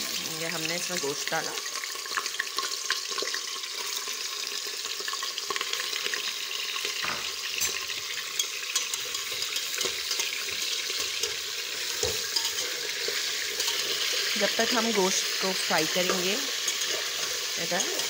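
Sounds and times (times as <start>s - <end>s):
meat sizzling in hot oil: 0.0s - 18.0s
knocks in a metal pot: 7.0s - 7.8s.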